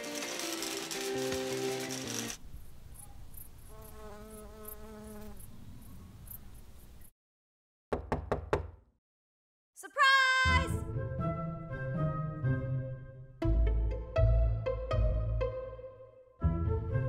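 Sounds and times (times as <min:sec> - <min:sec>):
sharp knocks: 0:07.9 - 0:08.8.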